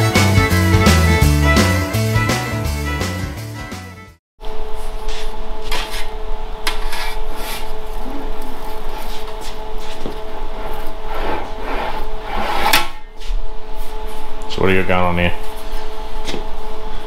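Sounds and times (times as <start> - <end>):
steady hum: 4.4 - 17.0.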